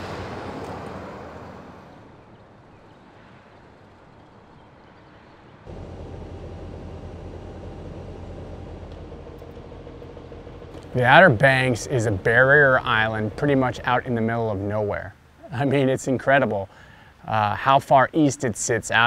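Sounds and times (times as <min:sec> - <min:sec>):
low engine rumble: 0:00.0 - 0:02.4, 0:05.7 - 0:15.4
truck towing trailer driving past: 0:00.0 - 0:02.5, 0:05.7 - 0:14.0
distant traffic: 0:00.0 - 0:19.0.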